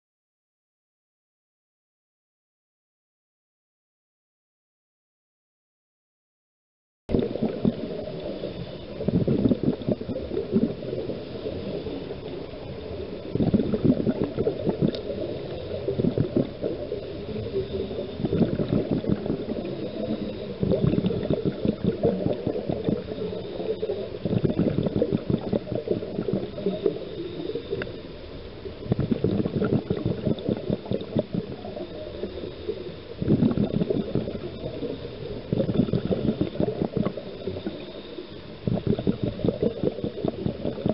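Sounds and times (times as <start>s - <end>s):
muffled underwater bubbles gurgling: 7.1s - 40.9s.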